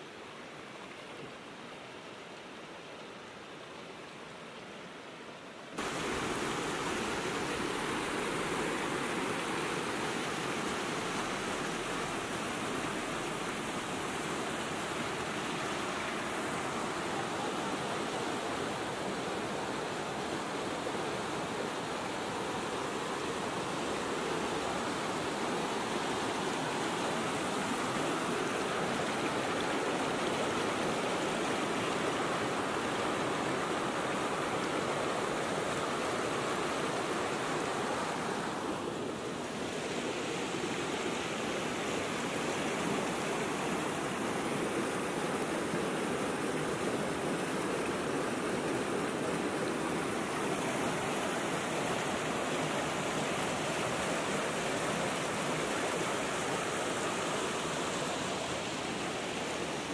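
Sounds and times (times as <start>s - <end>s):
stream rushing over rocks: 0.0s - 59.9s.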